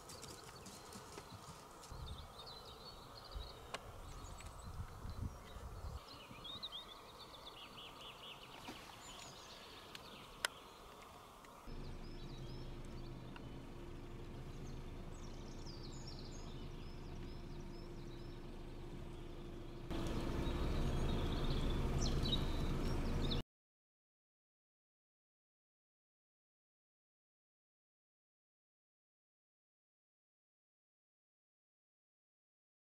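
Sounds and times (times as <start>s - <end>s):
small birds chirping and trilling: 0.0s - 23.4s
low hum: 0.3s - 23.4s.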